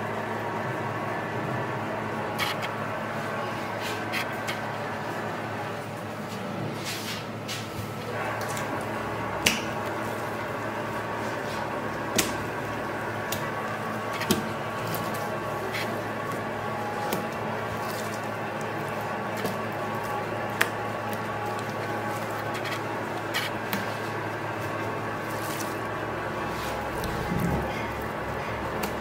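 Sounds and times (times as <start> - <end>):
steady kitchen hum: 0.0 - 29.0
fish slapping on cutting board: 9.4 - 9.7, 12.1 - 12.4.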